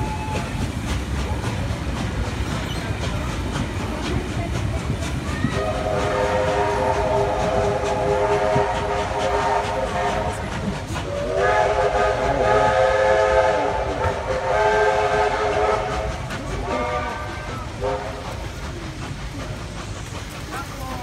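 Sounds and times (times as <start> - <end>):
steam whistle blasts: 0.0 - 0.6, 5.6 - 10.5, 11.1 - 18.2
steam train rumble and hiss: 0.0 - 21.0.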